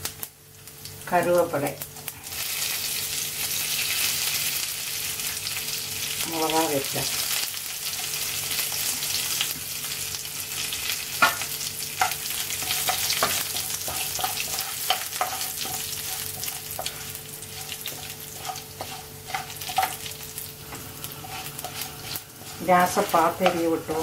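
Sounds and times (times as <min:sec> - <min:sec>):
oil sizzling in frying pan: 0:00.0 - 0:24.0
wooden spoon scraping pan: 0:12.0 - 0:24.0.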